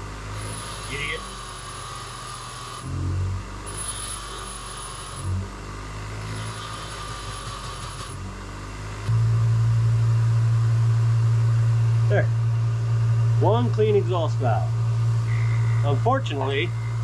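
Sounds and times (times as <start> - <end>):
bench grinder motor hum: 0.0 - 17.0
loud low hum: 2.9 - 3.8, 8.2 - 17.0.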